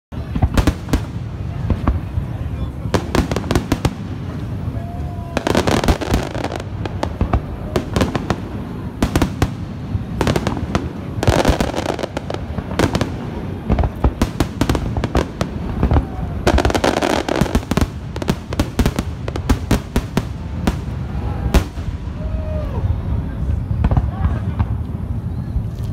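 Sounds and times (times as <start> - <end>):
fireworks bangs: 0.1 - 25.6
fireworks crackling: 0.1 - 25.9.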